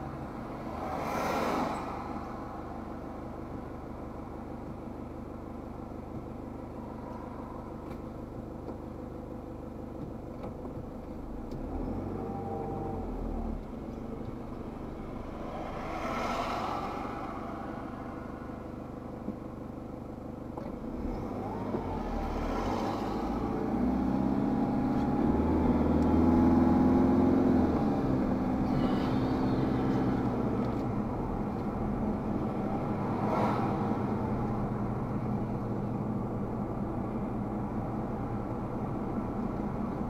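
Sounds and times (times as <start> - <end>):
car engine idling and pulling forward: 0.0 - 40.0
vehicle passing by: 0.5 - 2.7, 14.8 - 19.1.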